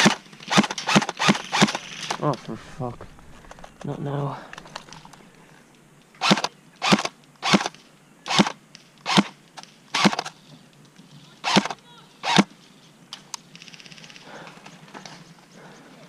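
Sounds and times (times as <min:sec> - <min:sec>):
airsoft rifle shots: 0:00.0 - 0:02.3, 0:06.2 - 0:10.3, 0:11.4 - 0:12.5.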